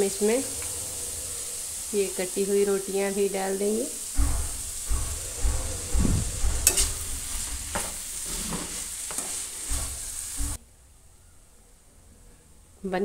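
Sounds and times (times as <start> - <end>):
light sizzle: 0.0 - 10.6
metal spoon scraping a metal pan: 5.8 - 10.5.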